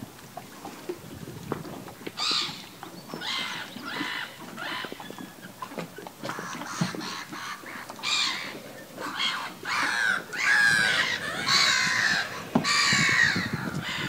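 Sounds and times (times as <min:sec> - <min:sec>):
bird calling: 0:02.2 - 0:14.0.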